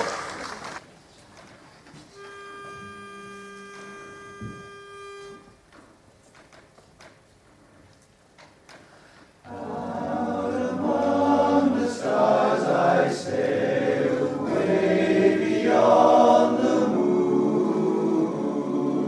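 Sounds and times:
men's chorus singing a cappella: 9.5 - 19.0.

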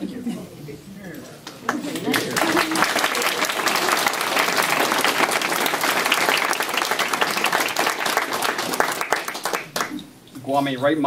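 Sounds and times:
crowd applauding: 1.6 - 10.0.

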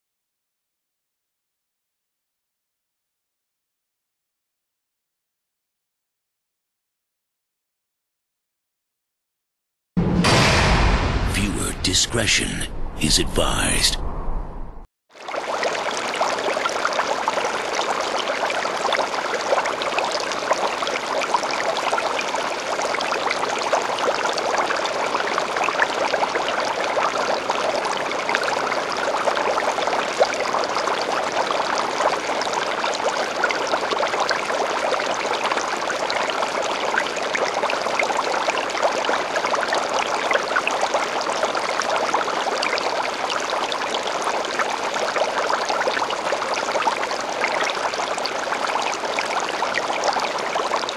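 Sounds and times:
aquarium water trickling: 15.2 - 50.9.

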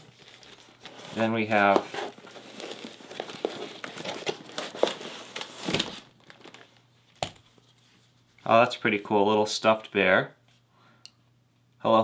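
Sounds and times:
cardboard box crinkling and rustling: 0.0 - 6.8.

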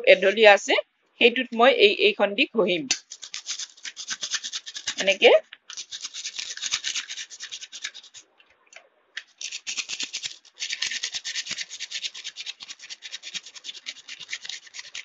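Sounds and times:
sandpaper scratching on blade: 2.9 - 8.2, 9.3 - 15.0.

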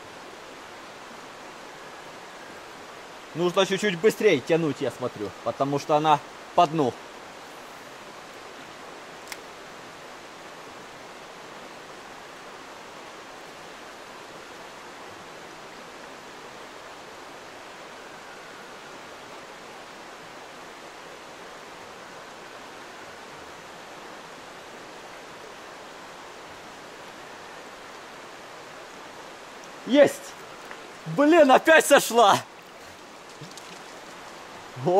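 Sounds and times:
stream rushing: 0.0 - 34.9
sharp click: 9.2 - 9.5.

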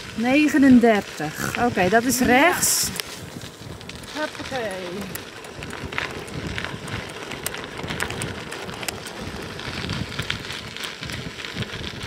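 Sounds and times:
bicycle tyres crunching on gravel: 0.0 - 12.0
stones popping and clicking: 5.0 - 12.0.

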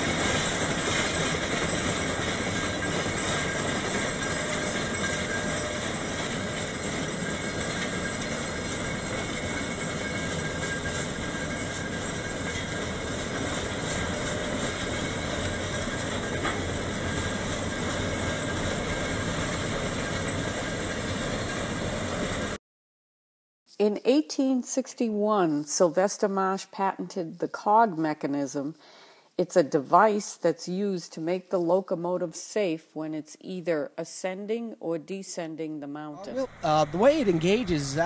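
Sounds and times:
steam locomotive working steam: 0.0 - 22.6, 36.2 - 38.0.

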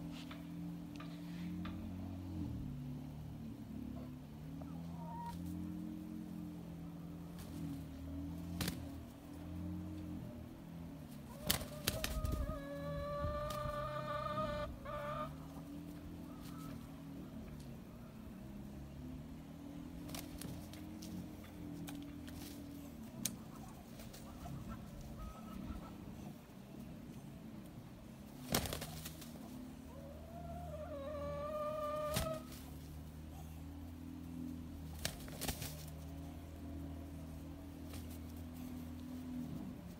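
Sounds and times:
wing flaps: 7.3 - 9.1, 11.3 - 12.4, 20.0 - 24.6, 28.3 - 29.6, 34.9 - 36.2
rooster crowing: 12.3 - 15.4, 30.0 - 32.4.

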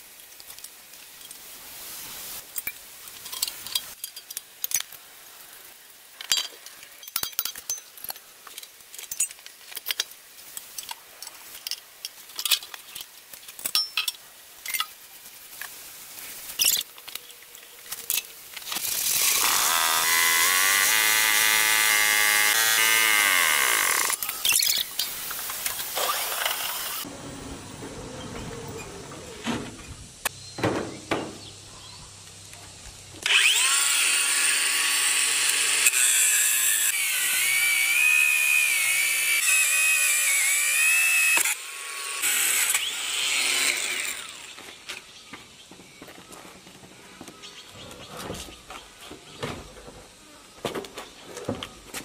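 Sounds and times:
metal tools clinking: 6.2 - 15.0
loud power tool running: 19.0 - 24.2, 33.2 - 44.5.

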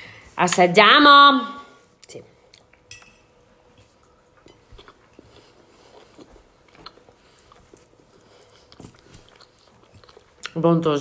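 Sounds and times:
person chewing: 4.4 - 10.6.

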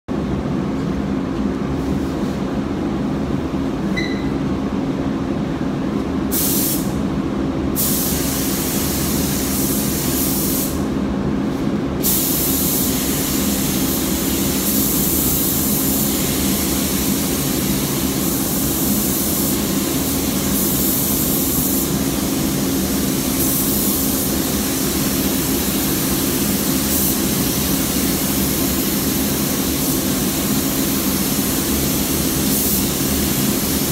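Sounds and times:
spray gun hissing: 6.3 - 7.0, 7.8 - 10.9, 12.0 - 33.9.

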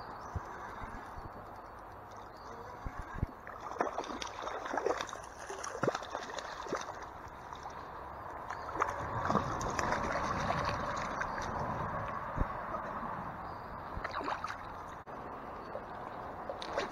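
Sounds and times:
flowing stream water: 0.0 - 16.9
fish splashing at surface: 8.6 - 11.6.

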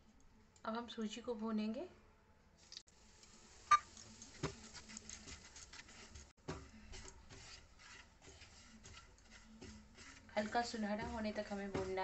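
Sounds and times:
spatula scraping a pan: 3.7 - 12.0
spatula tapping a pan: 6.4 - 12.0.

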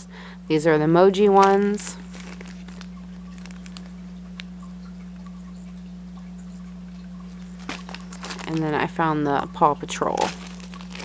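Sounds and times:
steady low hum: 0.0 - 11.0
plastic bag rustling: 1.2 - 4.5, 7.2 - 11.0.

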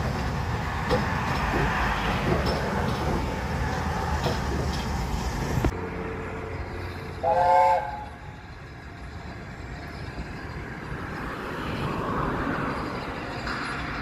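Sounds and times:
steam locomotive rumble: 0.0 - 14.0
steam locomotive whistle: 7.0 - 8.4.

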